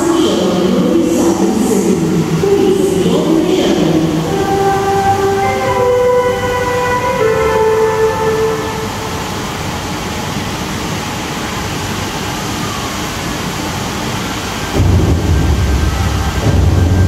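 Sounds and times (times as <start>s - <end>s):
waterfall rushing: 1.9s - 17.0s
low rumble: 14.8s - 17.0s.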